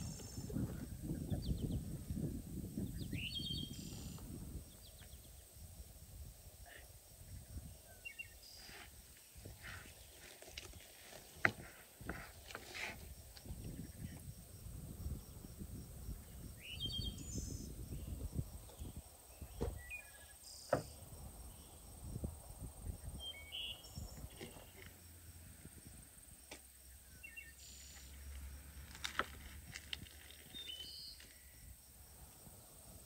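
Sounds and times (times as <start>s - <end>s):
small birds chirping: 0.0s - 5.8s, 6.6s - 11.4s, 13.3s - 14.3s, 15.0s - 21.9s, 23.0s - 25.0s, 26.9s - 28.2s, 30.0s - 31.8s.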